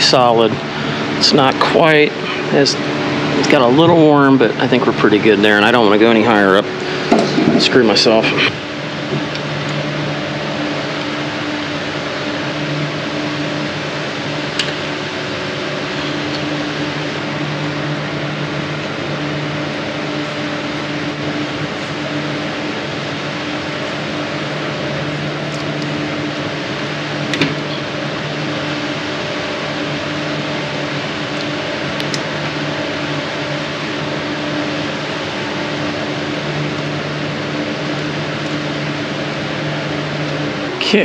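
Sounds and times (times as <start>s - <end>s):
fan-like rushing: 0.0s - 31.8s
low electrical hum: 0.0s - 41.0s.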